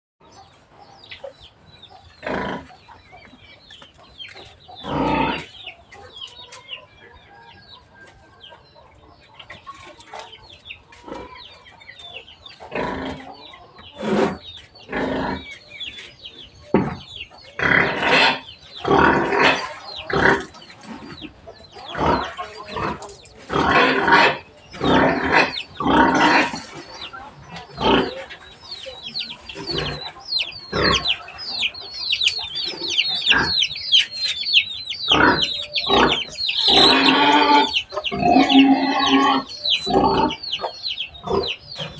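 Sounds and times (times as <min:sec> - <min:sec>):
chickens clucking: 0:00.2 - 0:41.9
pigs squealing: 0:02.2 - 0:02.8, 0:04.8 - 0:05.6, 0:12.7 - 0:13.4, 0:17.6 - 0:21.2, 0:21.9 - 0:28.3, 0:29.5 - 0:31.3, 0:32.5 - 0:34.1, 0:35.1 - 0:40.4.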